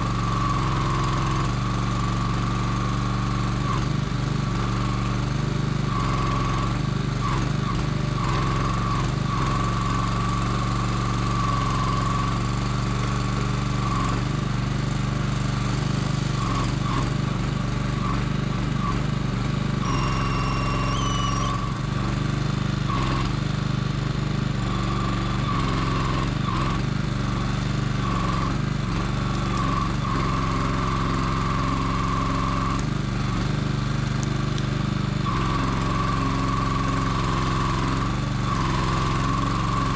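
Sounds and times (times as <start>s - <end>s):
hydraulic crane whine: 0.0s - 33.6s, 34.8s - 39.9s
small engine running: 0.0s - 39.9s
brief high whistle: 19.8s - 21.7s.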